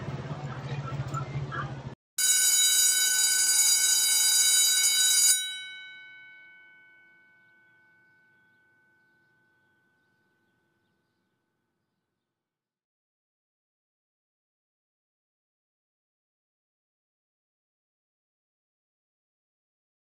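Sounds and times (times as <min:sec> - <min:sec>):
alarm bell ringing: 0:02.2 - 0:10.4.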